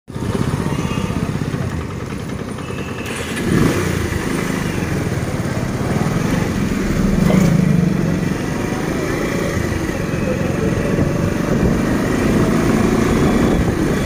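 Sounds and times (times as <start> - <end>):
motorcycle engine running: 0.1 - 14.0
motorcycle passing by: 3.0 - 14.0.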